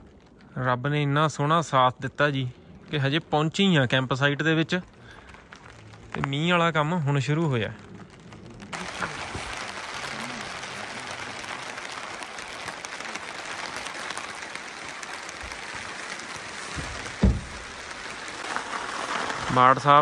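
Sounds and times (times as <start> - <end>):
rain pattering on plastic tarp: 0.0 - 20.0
thump: 16.8 - 17.6.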